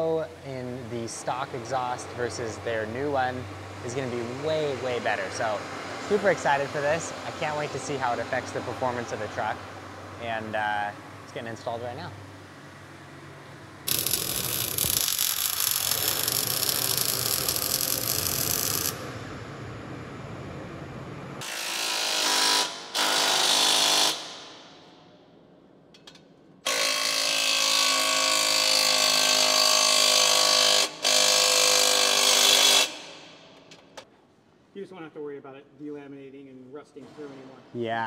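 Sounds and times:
power tool running in bursts: 13.9 - 19.1.

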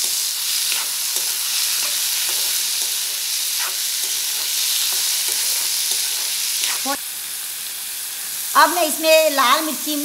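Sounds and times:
metal spatula scraping a pan: 0.0 - 7.0
vegetables sizzling in hot oil: 0.0 - 10.0.

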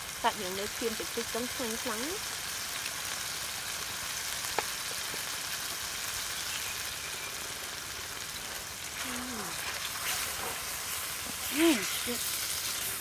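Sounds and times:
food sizzling in a hot pan: 0.0 - 13.0.

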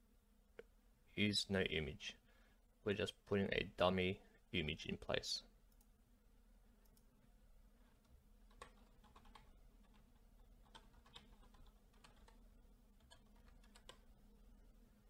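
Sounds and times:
faint typing on keyboard: 5.7 - 6.0, 6.8 - 7.2, 7.8 - 14.2.

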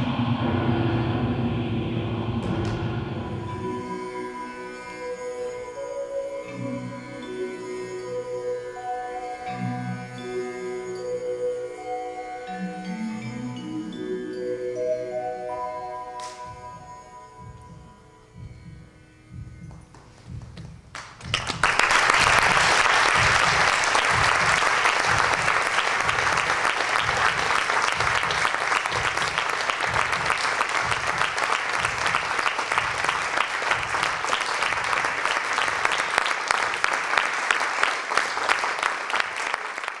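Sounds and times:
audience applauding: 20.9 - 40.0.

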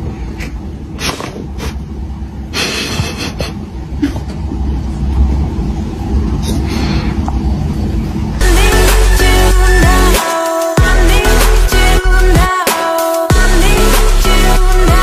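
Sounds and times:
low rumble: 0.0 - 9.9
music: 8.4 - 15.0.

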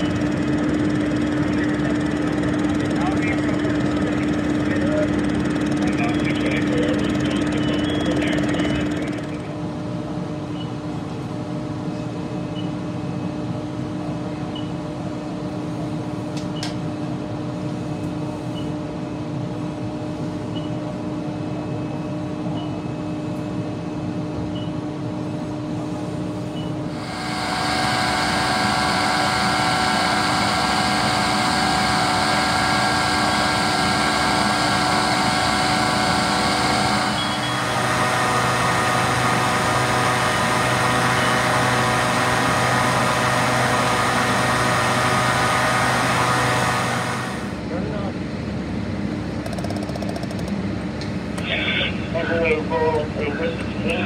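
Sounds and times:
portable generator running: 0.0 - 9.8, 26.8 - 48.1, 49.3 - 50.9
engine drone: 0.0 - 11.6, 19.7 - 54.0
ventilation fan running: 0.0 - 54.0.

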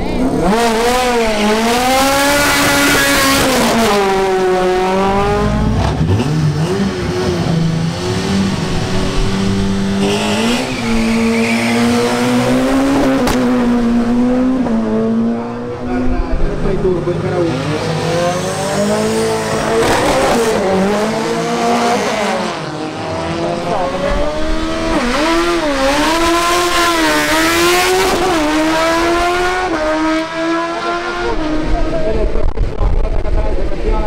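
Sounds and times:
racing car engines revving: 0.0 - 34.0
tyre squeal: 10.0 - 12.2.

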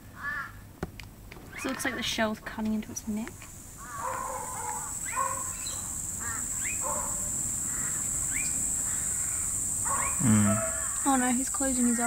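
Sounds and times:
high-pitched animal calls: 3.8 - 12.0.

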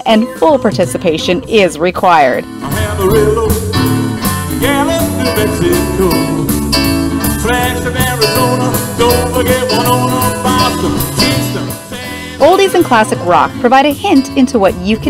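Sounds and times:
rock band playing: 0.7 - 15.0
man singing: 2.5 - 13.0.

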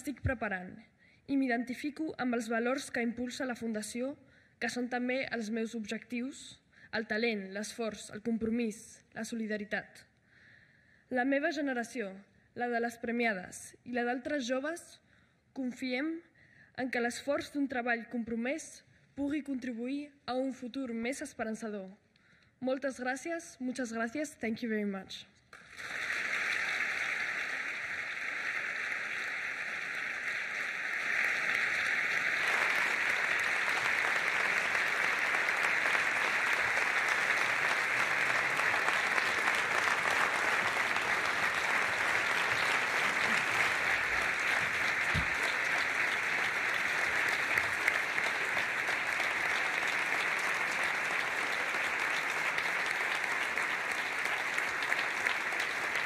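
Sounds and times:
large audience applauding: 25.6 - 56.0.

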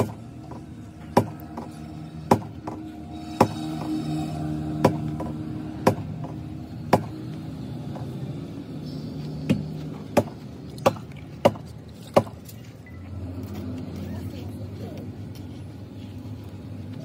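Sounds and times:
hammer strikes: 0.0 - 7.2, 9.4 - 12.5.

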